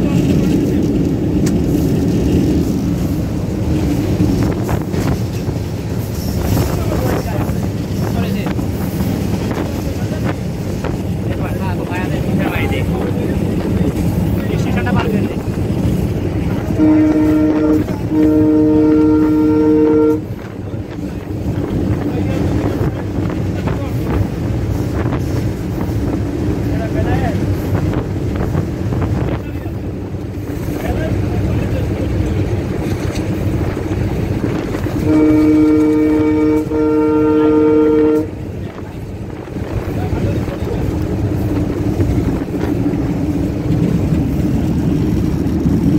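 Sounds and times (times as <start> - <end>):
moving train rumble: 0.0 - 45.9
locomotive air horn blasts: 16.6 - 20.4, 34.9 - 38.4
engine rumble: 38.0 - 45.9.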